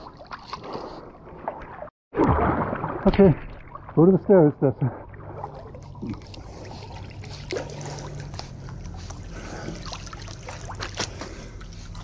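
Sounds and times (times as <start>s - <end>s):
steady low hum: 4.8s - 12.0s
dog paddling in water: 4.9s - 12.0s.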